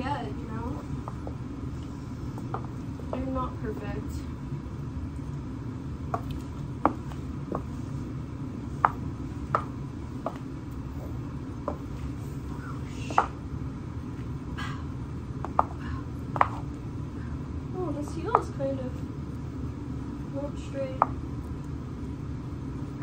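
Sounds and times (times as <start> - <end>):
steady low hum: 0.0 - 23.0
high heels clicking on tile: 6.1 - 7.7, 8.8 - 10.8, 11.6 - 12.0, 15.4 - 16.7.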